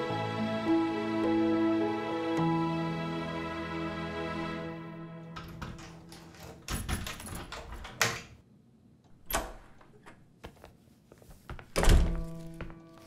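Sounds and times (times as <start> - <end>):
book pages rustling: 10.4 - 13.0
door opening with a thud: 11.8 - 12.4.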